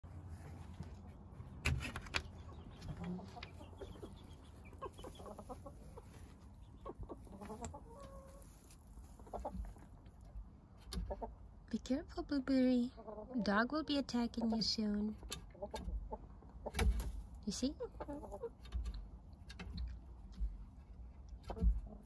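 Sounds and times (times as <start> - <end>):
chickens clucking: 2.2 - 11.6, 12.9 - 22.0.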